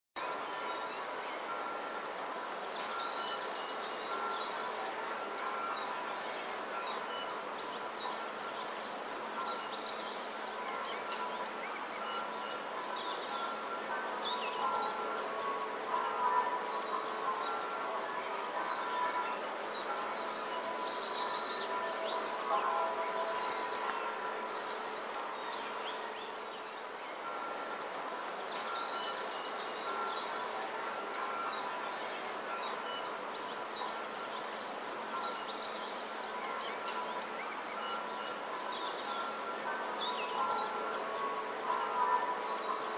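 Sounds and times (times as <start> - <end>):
steady drone with held tones: 10.4 - 34.3.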